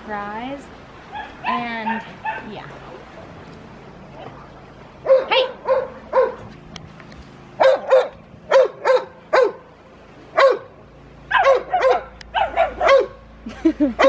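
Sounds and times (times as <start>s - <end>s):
large dog barking: 5.0s - 6.4s, 7.6s - 9.7s, 10.4s - 13.3s
smaller dog barking: 5.0s - 6.4s, 7.6s - 9.7s, 10.4s - 10.7s, 11.3s - 13.2s.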